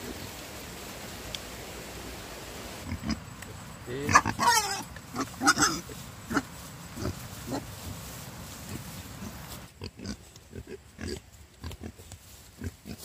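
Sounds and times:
animal grunting: 3.9 - 6.4.

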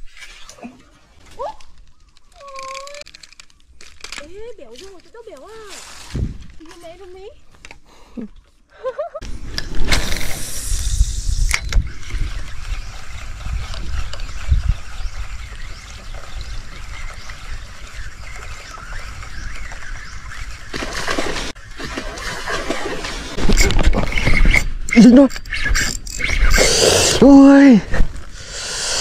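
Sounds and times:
fishing line hissing out: 9.8 - 11.8, 25.5 - 27.4, 28.4 - 29.0.

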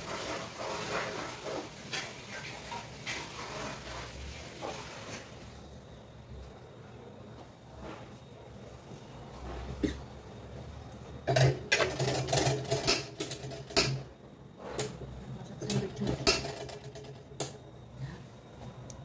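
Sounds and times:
wok and spatula clattering: 11.3 - 14.1, 15.6 - 17.3.

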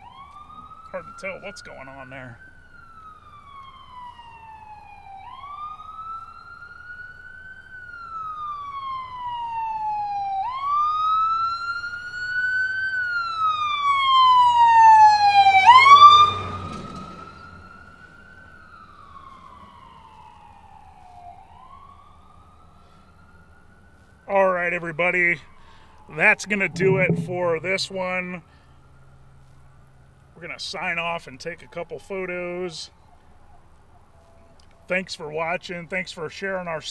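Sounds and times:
emergency siren wailing: 0.0 - 29.5.

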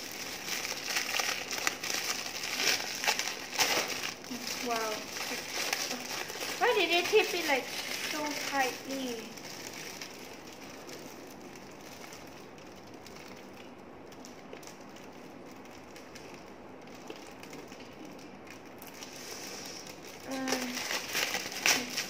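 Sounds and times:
plastic wrapping crinkling: 0.0 - 22.0.

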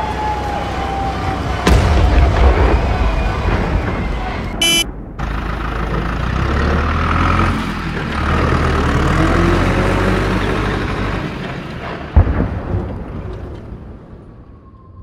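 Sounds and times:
loud low rumble: 1.4 - 8.2, 12.2 - 14.6
sharp bang: 4.6 - 5.0.

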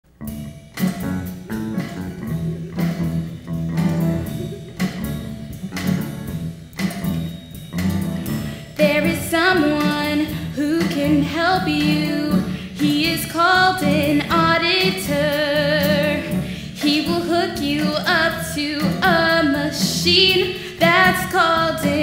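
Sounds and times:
live band playing: 0.2 - 22.0
person singing: 8.8 - 22.0.

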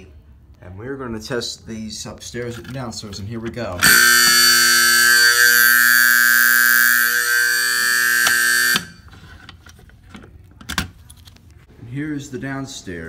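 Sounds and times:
fire alarm horn buzzing: 3.8 - 9.1.

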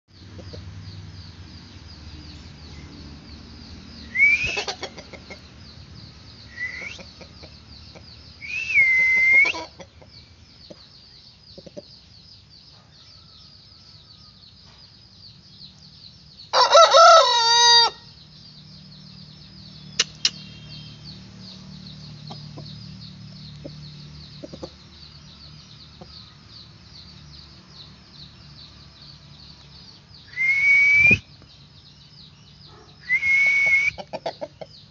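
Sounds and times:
rooster crowing: 16.5 - 18.1
short rising calls: 30.3 - 31.3, 33.0 - 34.0.

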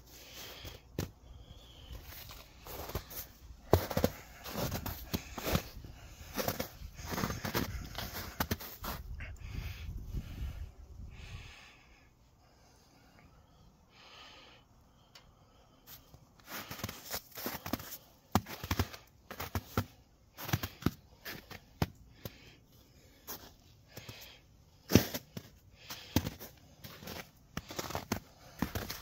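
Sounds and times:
footsteps crunching in snow: 1.8 - 9.1, 16.4 - 22.4, 24.9 - 29.0.

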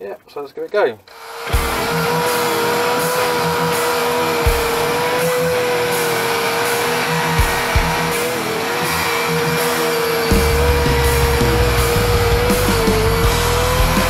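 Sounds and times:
electric drill motor whine: 1.1 - 14.0.

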